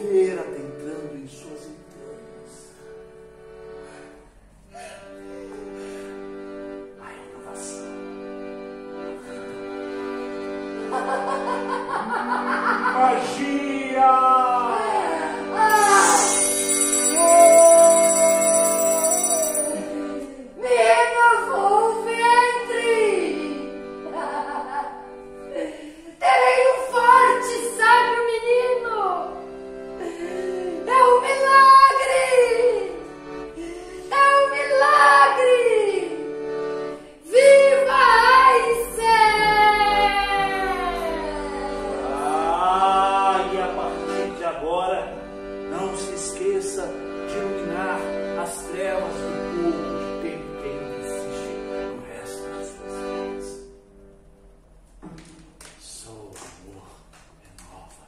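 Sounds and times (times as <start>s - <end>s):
person singing wordlessly: 13.2s - 23.1s
instrumental drone: 15.7s - 20.2s.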